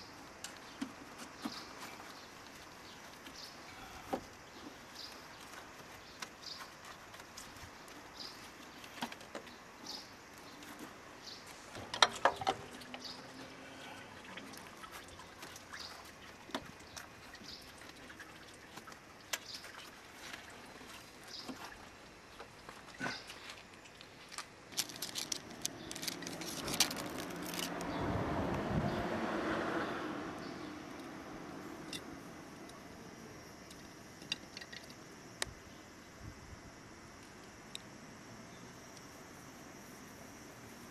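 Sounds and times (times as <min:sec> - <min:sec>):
clicks and knocks of metal and plastic: 0:11.7 - 0:13.0.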